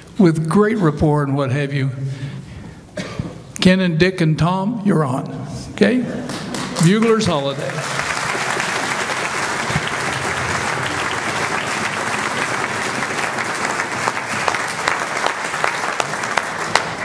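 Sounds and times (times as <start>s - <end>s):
audience applauding: 6.3s - 17.0s.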